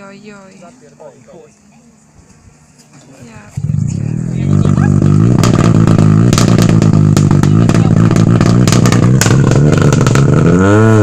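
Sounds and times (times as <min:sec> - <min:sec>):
car engine running and revving: 0:03.5 - 0:11.0
sharp clicks and clatter: 0:05.3 - 0:10.4.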